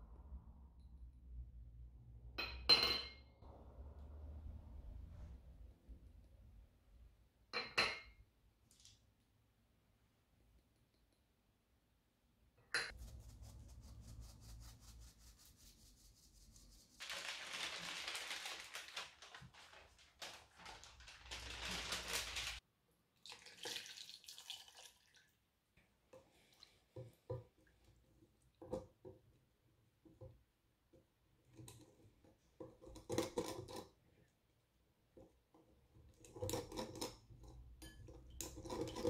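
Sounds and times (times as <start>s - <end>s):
parchment paper crinkling: 13.0s - 22.6s.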